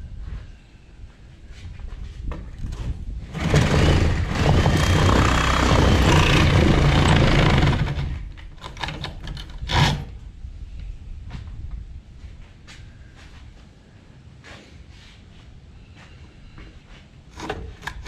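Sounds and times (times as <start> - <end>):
handheld power tool running: 3.4 - 8.2.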